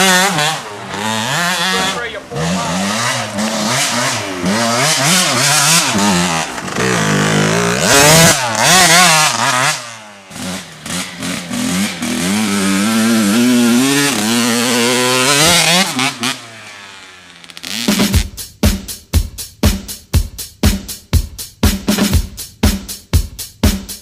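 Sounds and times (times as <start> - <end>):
dirt bike engine revving: 0.0 - 18.3.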